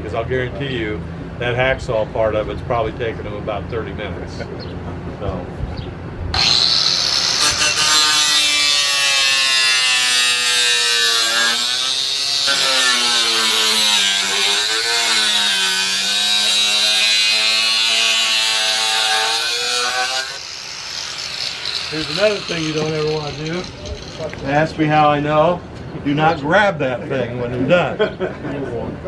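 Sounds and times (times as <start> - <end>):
angle grinder cutting metal: 6.4 - 24.7.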